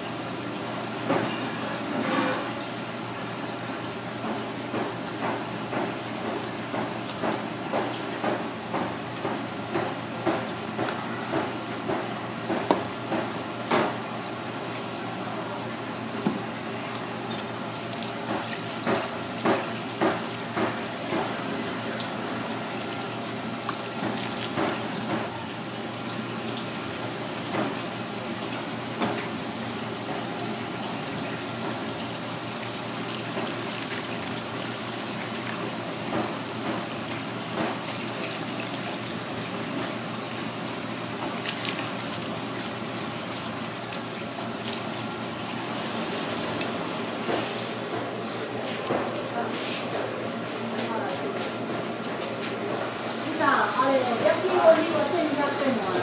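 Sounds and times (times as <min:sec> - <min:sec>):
tap water running into sink: 0:16.2 - 0:48.0, 0:52.5 - 0:56.0.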